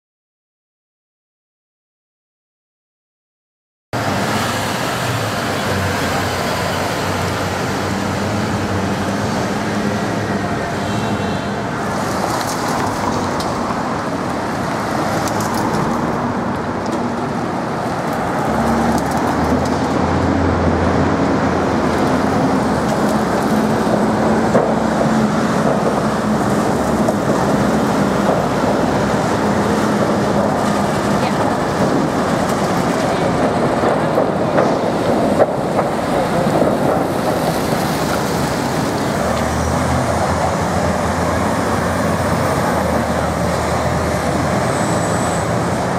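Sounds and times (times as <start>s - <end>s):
traffic driving past: 4.0s - 45.9s.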